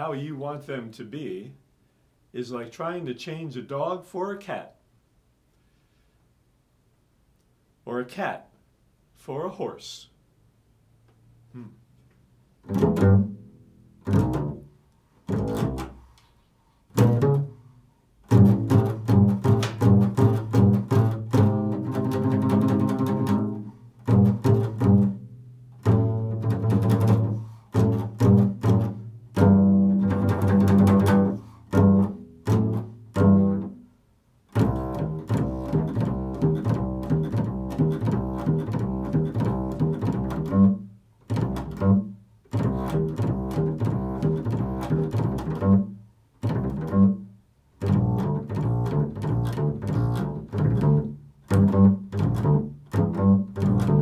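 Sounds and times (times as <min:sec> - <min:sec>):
double bass plucked: 0:11.4 - 0:11.9, 0:12.5 - 0:16.1, 0:16.9 - 0:54.0.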